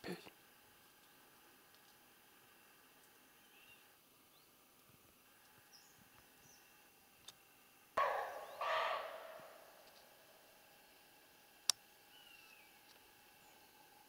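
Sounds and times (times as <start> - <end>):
faint bird chirps: 2.5 - 4.6, 5.3 - 6.9, 8.0 - 10.4, 11.3 - 13.8
deer barking: 8.0 - 10.2.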